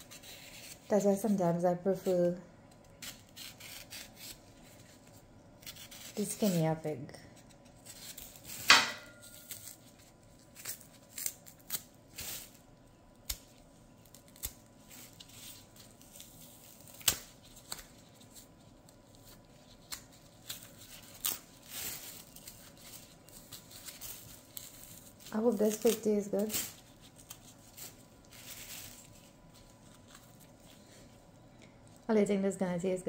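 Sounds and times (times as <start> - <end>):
peel tearing and scraping: 0.0 - 0.9, 2.7 - 6.7, 7.4 - 31.1.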